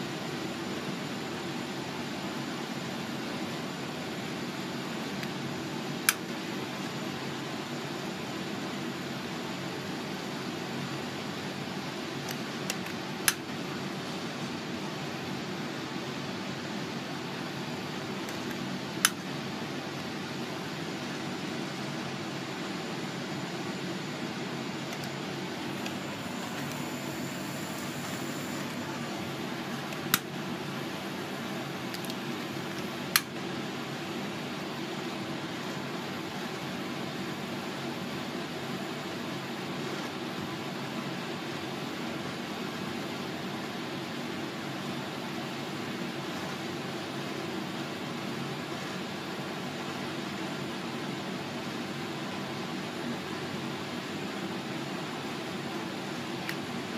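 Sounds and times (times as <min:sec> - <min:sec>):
gas flame burning: 0:00.0 - 0:52.3
gas jet hissing: 0:25.6 - 0:30.3.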